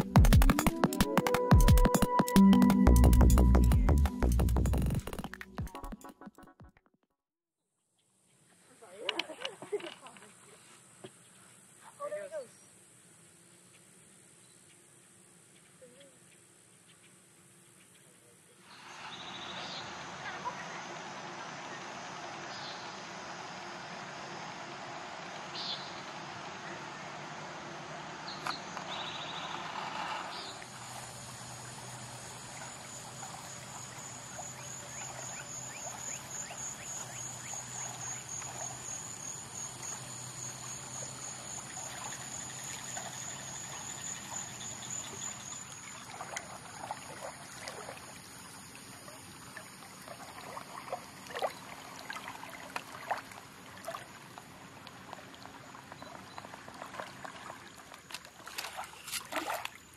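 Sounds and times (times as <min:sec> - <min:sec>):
small waves lapping on shore: 0:18.6 - 0:59.9
high-pitched insect trill: 0:30.3 - 0:50.9.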